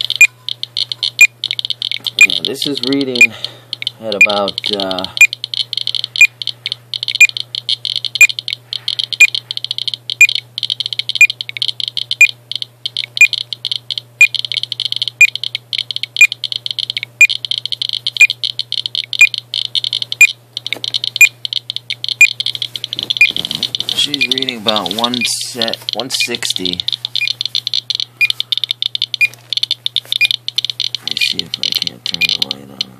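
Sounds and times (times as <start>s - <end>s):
sharp alarm beeps: 0.0s - 2.5s, 3.1s - 4.4s, 5.0s - 32.5s
geiger counter clicking: 0.0s - 32.9s.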